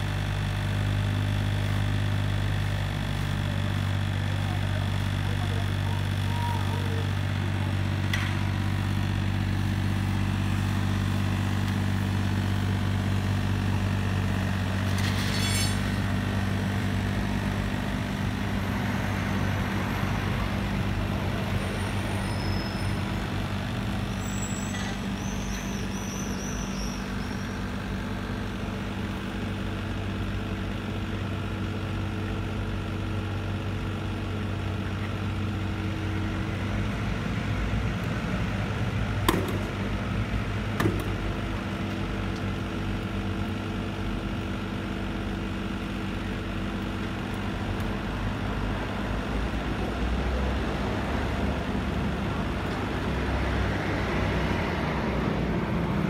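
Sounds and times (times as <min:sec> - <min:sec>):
diesel engine idling: 0:00.0 - 0:15.0, 0:15.8 - 0:56.0
sharp metal clanks: 0:14.9 - 0:16.0.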